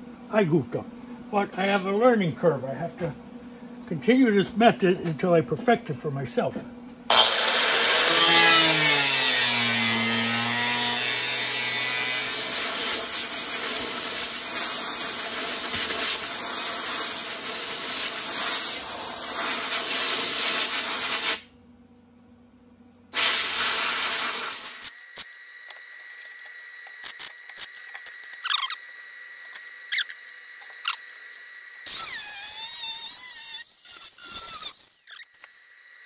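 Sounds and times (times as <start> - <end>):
angle grinder grinding steel: 7.1 - 21.3, 24.3 - 36.0.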